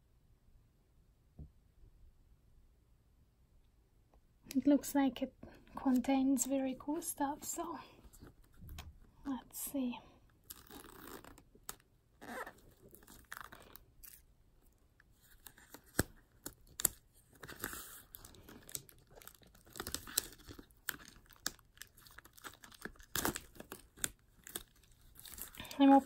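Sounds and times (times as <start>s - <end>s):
plastic wrap crinkling: 10.4s - 14.3s, 15.1s - 26.0s.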